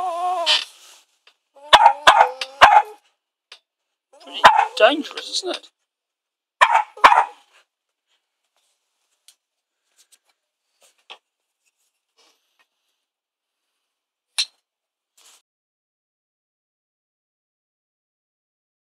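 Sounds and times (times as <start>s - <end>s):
dog barking: 1.6s - 3.0s, 4.2s - 4.9s, 6.6s - 7.5s.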